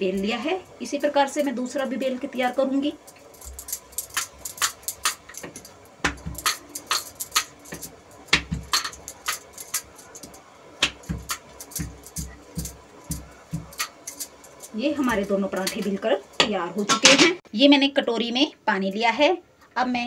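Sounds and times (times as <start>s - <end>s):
bangles clinking: 2.4s - 16.4s
rolling pin knocking on countertop: 4.2s - 9.9s, 10.8s - 14.0s.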